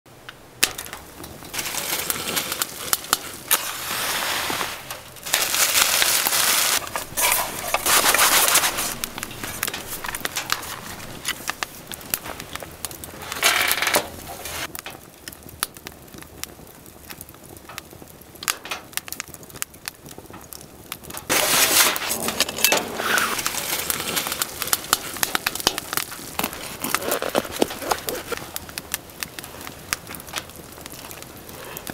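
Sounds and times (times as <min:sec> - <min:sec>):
rustling noise: 0:00.8 - 0:14.8, 0:21.2 - 0:31.9.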